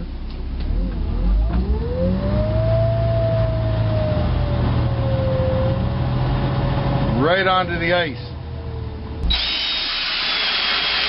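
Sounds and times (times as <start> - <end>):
motor whining under load: 9.2 - 11.0.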